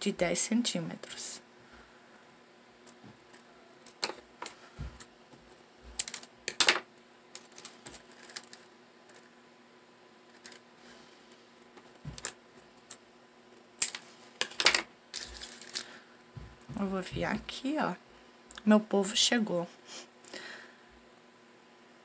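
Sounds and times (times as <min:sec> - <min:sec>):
plastic beads clicking and rattling: 0:06.0 - 0:09.3.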